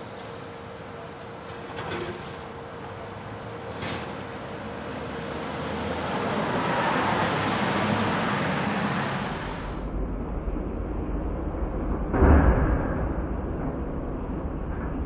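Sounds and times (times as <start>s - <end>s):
garbage truck engine and hydraulics: 0.0s - 15.0s
steady rushing noise: 0.0s - 15.0s
low rumble: 9.2s - 15.0s.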